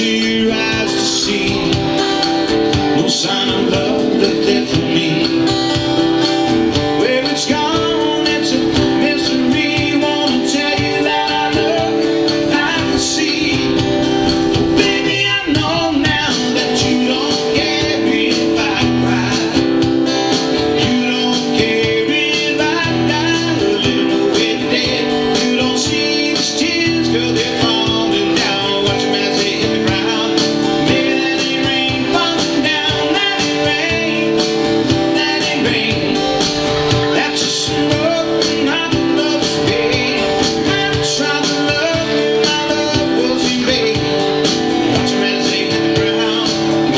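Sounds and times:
acoustic guitar strumming: 0:00.0 - 0:46.9
man singing into microphone: 0:00.0 - 0:46.9.

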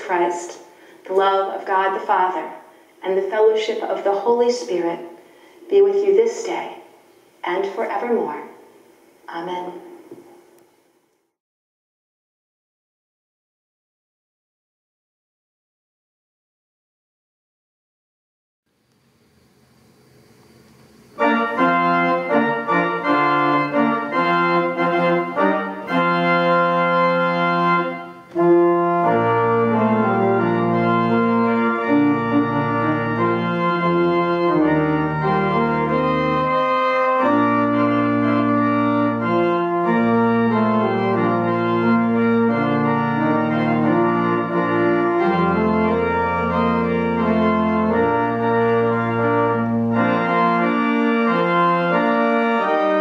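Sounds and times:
organ chords: 0:19.3 - 0:53.0
deep organ bass notes: 0:21.0 - 0:53.0.

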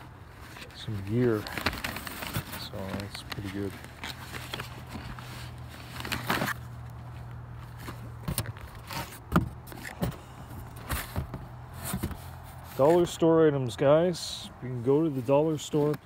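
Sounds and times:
fabric bag rustling: 0:00.3 - 0:06.6.

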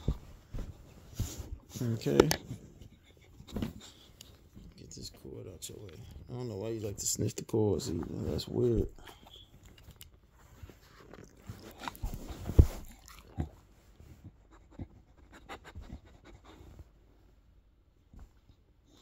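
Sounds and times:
knocks and rustles: 0:00.0 - 0:04.8, 0:11.4 - 0:13.0
puppy sniffing and snuffling: 0:00.0 - 0:04.8, 0:10.3 - 0:17.4.

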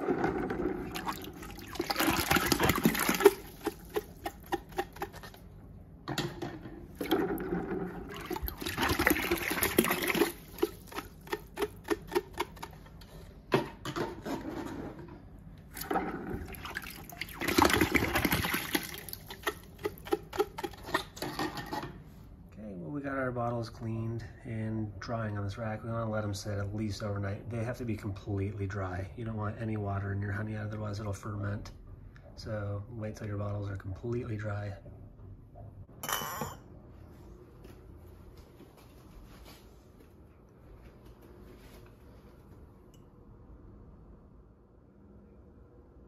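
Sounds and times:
water sloshing in a bucket: 0:00.0 - 0:05.5, 0:06.9 - 0:12.7, 0:15.7 - 0:21.8.

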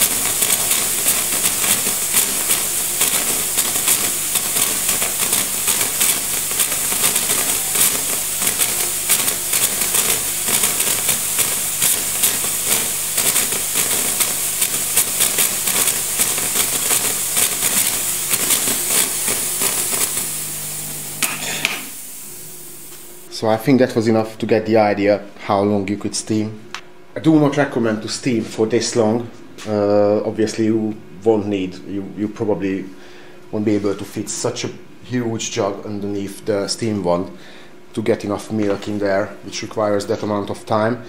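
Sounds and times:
steam wand hissing: 0:00.0 - 0:23.3.

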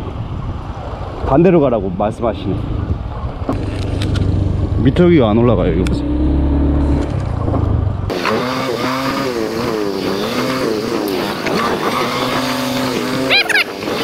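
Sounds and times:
wind noise: 0:00.0 - 0:08.2, 0:08.8 - 0:14.0
small motorbike engine revving: 0:08.1 - 0:14.0.

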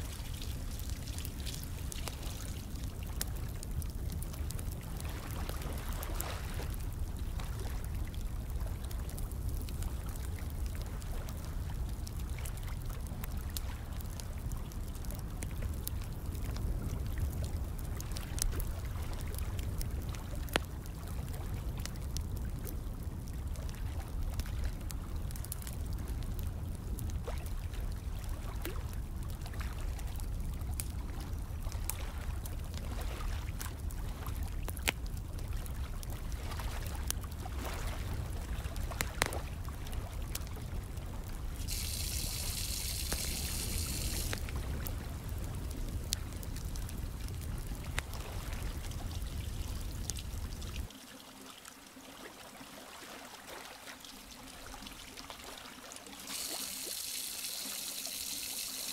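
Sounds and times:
running water: 0:00.0 - 0:03.5, 0:41.2 - 0:44.8, 0:50.6 - 0:58.9
fire crackling and popping: 0:00.0 - 0:51.0, 0:56.2 - 0:58.9.

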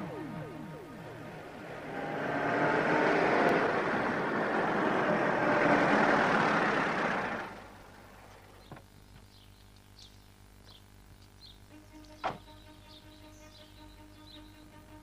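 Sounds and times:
car engine running: 0:00.0 - 0:09.4
low background hum: 0:00.0 - 0:15.0.

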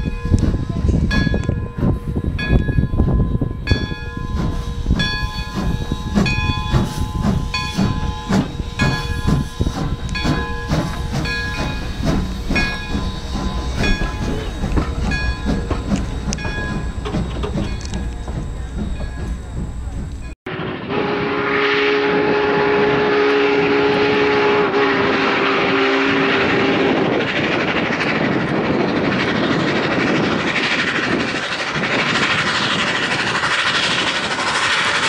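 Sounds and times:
locomotive bell ringing: 0:00.0 - 0:20.4
steam engine rumble and hiss: 0:00.0 - 0:35.0.

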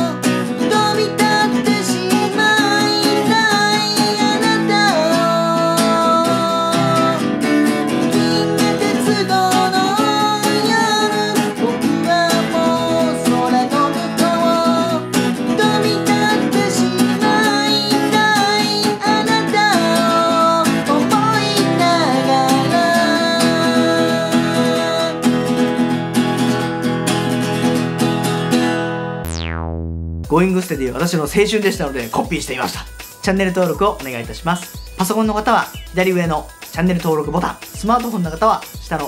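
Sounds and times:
man singing: 0:00.0 - 0:00.2, 0:00.8 - 0:07.3, 0:08.0 - 0:25.2
acoustic guitar strumming: 0:00.0 - 0:29.5.

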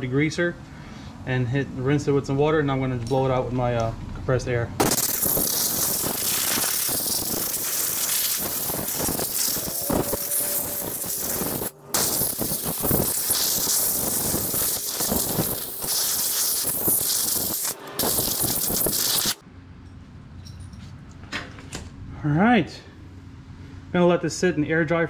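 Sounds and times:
air blow gun hissing: 0:04.8 - 0:19.4.

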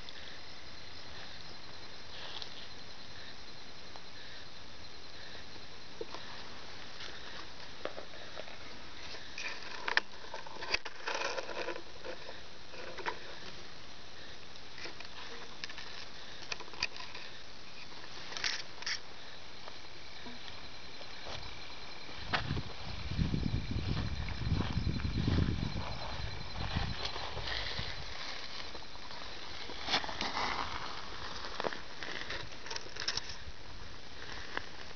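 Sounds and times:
steady hiss: 0:00.0 - 0:34.9
camera rustling through wet grass: 0:23.8 - 0:33.5.

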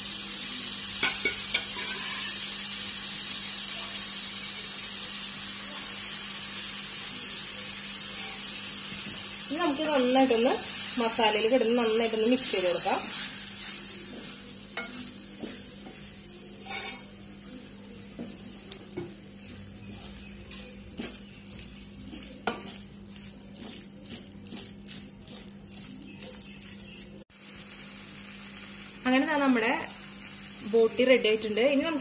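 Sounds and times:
tripe sizzling in a pan: 0:00.0 - 0:32.0
spatula scraping and knocking pan: 0:01.0 - 0:02.3, 0:11.6 - 0:17.2, 0:18.0 - 0:27.1.

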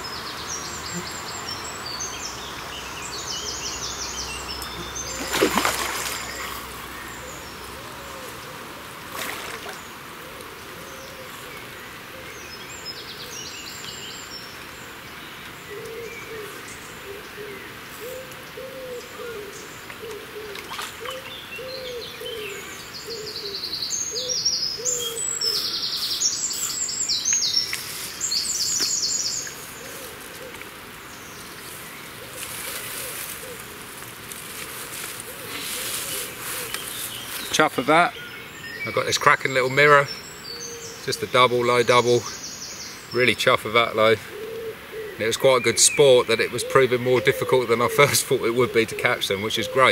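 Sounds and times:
high trilling birdsong: 0:00.0 - 0:08.7, 0:09.3 - 0:49.9
bird hooting call: 0:15.7 - 0:27.5, 0:28.8 - 0:30.7, 0:35.2 - 0:37.0, 0:44.2 - 0:45.3, 0:46.5 - 0:49.9.

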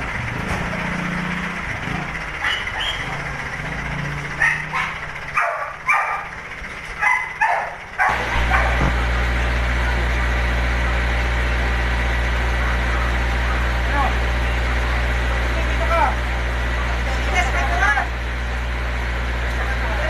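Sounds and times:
engine hum: 0:00.0 - 0:20.0
dog barking: 0:02.4 - 0:03.0, 0:04.4 - 0:06.3, 0:07.0 - 0:09.0.

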